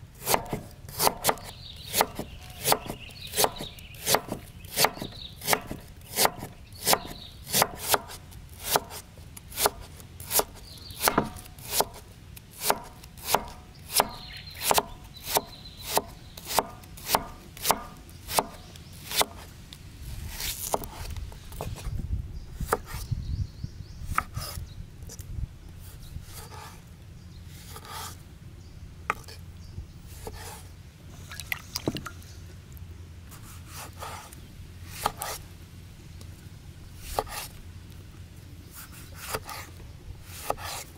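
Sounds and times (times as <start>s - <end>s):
knife chopping on wooden board: 0.2s - 9.0s, 9.6s - 12.0s, 12.6s - 19.4s, 40.4s - 40.8s.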